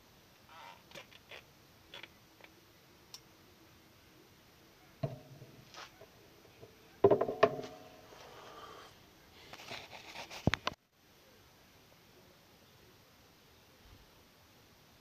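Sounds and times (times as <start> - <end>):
knocks on wooden tabletop: 5.0 - 5.4, 7.0 - 7.8.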